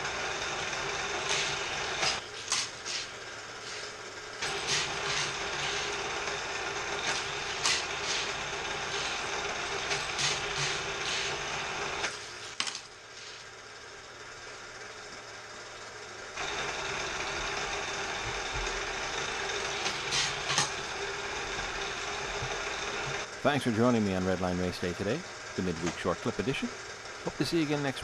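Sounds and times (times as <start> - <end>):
toy booster motor whirring: 0.0 - 13.7, 16.4 - 23.3.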